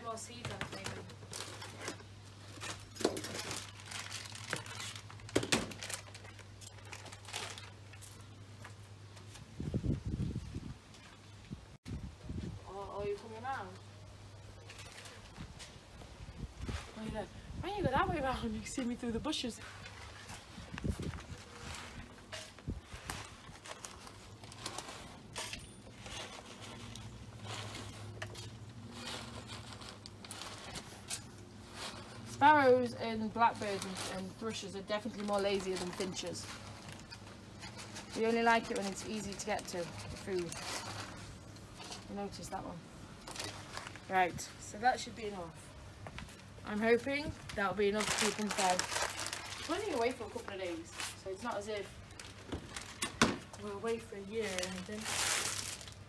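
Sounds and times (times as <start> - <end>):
plastic bags crinkling: 0.7 - 8.4, 18.6 - 42.5, 43.1 - 44.3, 47.0 - 56.0.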